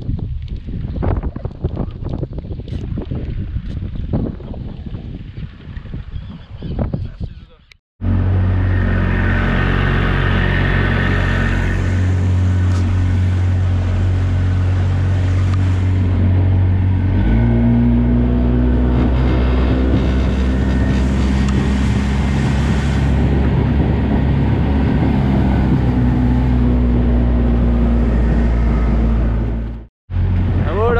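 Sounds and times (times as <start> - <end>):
outboard motor droning: 8.0 - 30.9.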